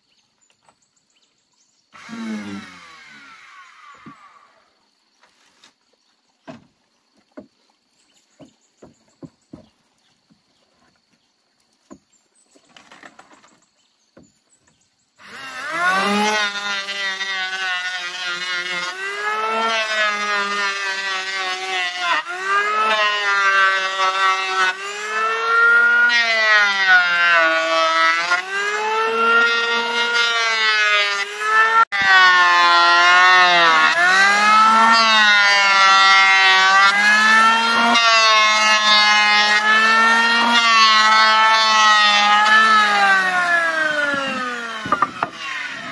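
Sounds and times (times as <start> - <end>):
electric hand planer whining: 2.0 - 4.8, 15.2 - 45.9.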